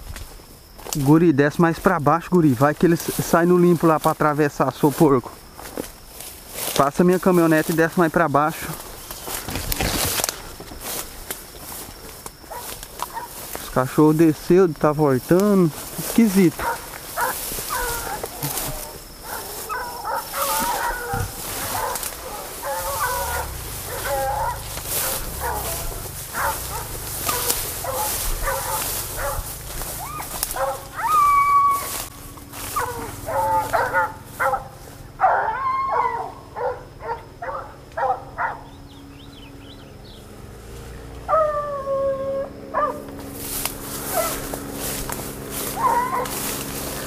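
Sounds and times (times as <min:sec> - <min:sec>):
dogs barking and baying: 0:08.6 - 0:13.7, 0:15.7 - 0:39.1, 0:40.4 - 0:47.0
dogs howling: 0:12.5 - 0:13.4, 0:16.5 - 0:38.8, 0:41.2 - 0:43.2, 0:44.0 - 0:44.8, 0:45.4 - 0:47.0.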